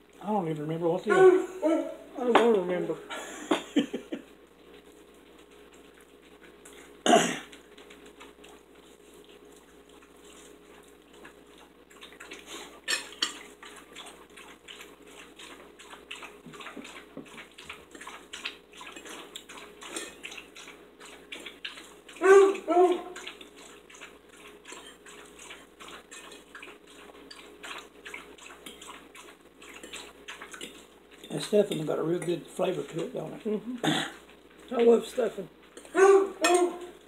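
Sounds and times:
cutlery clinking on plates: 35.8 - 36.8
sharp cutlery clatter: 35.8 - 36.8.

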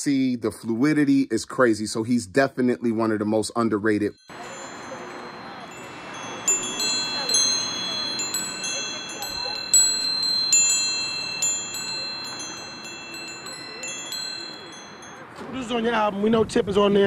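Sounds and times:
chimes ringing: 4.2 - 15.9.

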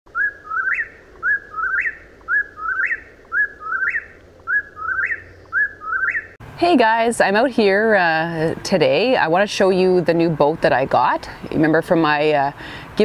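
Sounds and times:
bird singing three-note call: 0.2 - 6.3.

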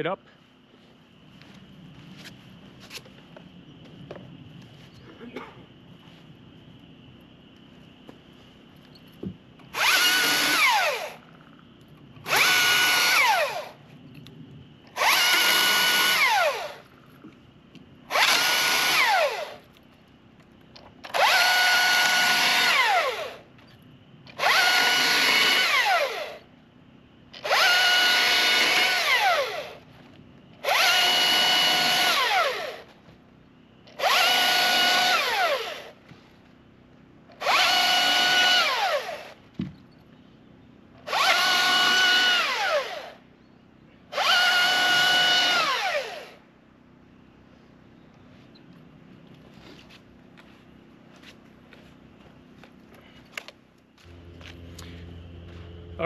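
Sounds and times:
electric chainsaw cutting log: 9.7 - 11.3, 12.2 - 13.8, 14.9 - 17.0, 18.1 - 19.6, 21.0 - 23.4, 24.3 - 26.4, 27.4 - 29.8, 30.6 - 32.9, 33.9 - 36.0, 37.3 - 39.4, 41.0 - 43.2, 44.1 - 46.4.

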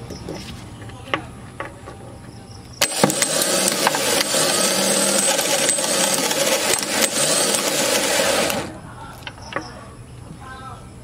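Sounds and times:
starter motor spinning: 2.8 - 8.8.

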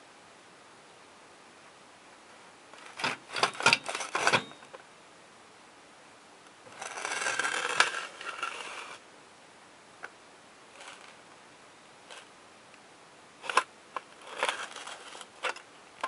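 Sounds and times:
scraping rustle on carpet: 6.7 - 9.0.

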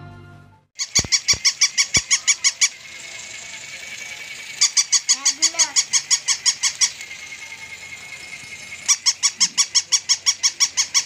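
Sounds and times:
toy dog electronic yaps: 0.8 - 11.0
toy motor whine: 0.8 - 11.0.

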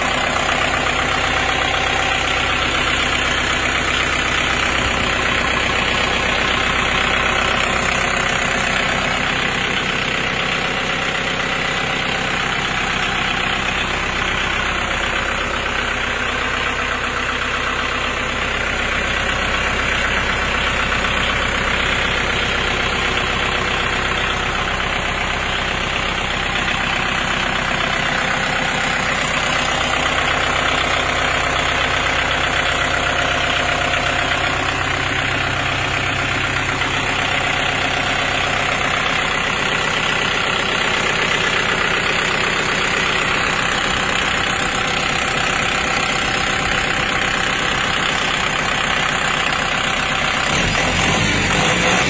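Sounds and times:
tractor diesel engine idling: 0.0 - 52.0.

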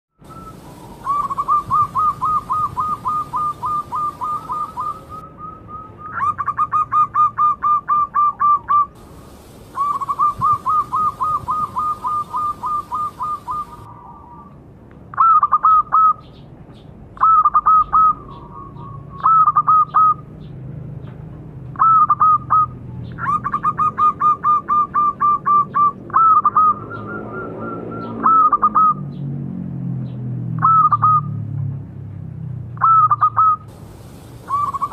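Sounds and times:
doves cooing: 0.3 - 14.5, 32.8 - 34.9.

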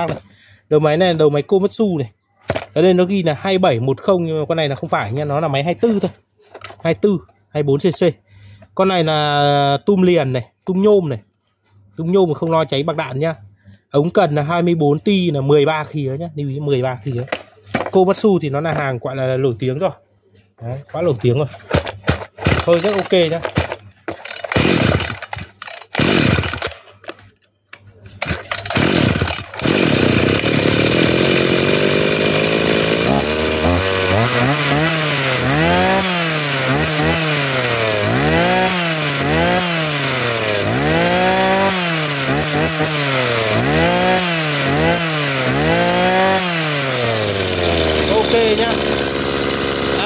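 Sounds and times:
brush-cutter engine revving: 0.0 - 0.2, 21.5 - 50.0.

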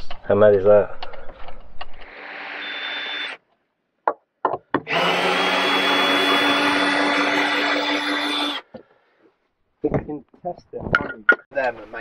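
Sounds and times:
cordless driver whining: 2.0 - 3.4, 4.9 - 8.6.

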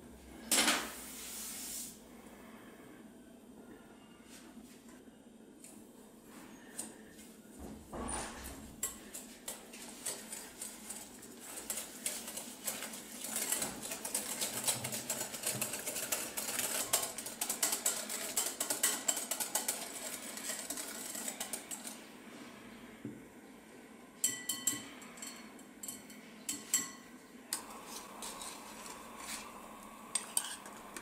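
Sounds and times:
whisk beating in a glass bowl: 8.8 - 22.0, 30.1 - 31.0.

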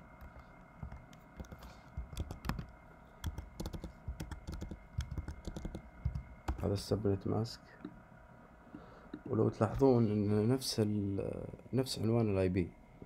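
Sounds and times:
keyboard typing: 0.2 - 6.7.

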